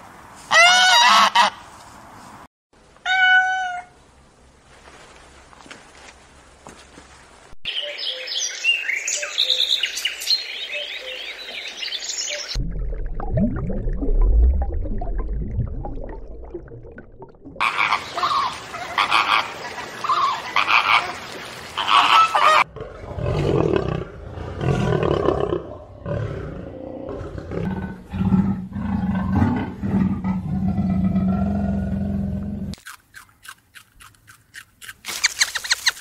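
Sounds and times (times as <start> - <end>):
big cat growling: 22.7 - 32.8.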